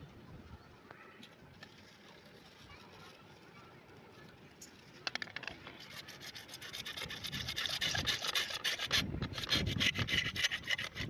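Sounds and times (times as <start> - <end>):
hacksaw sawing plastic pipe: 5.8 - 11.0.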